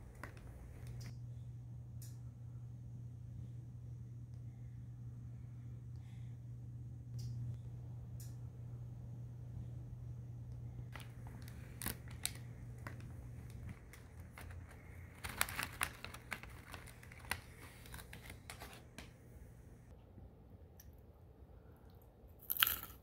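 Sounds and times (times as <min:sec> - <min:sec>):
faint low hum: 0:00.0 - 0:23.0
snack bag crinkling: 0:10.9 - 0:19.2.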